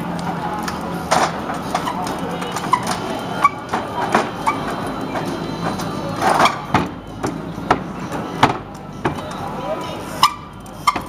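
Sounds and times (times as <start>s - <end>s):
short squeaks: 10.1s - 11.0s.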